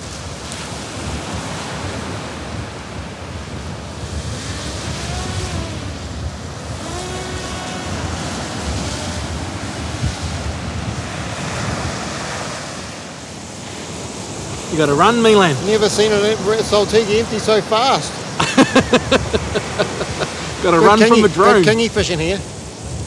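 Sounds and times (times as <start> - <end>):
surf breaking: 0.0 - 23.0
wind buffeting microphone: 0.0 - 23.0.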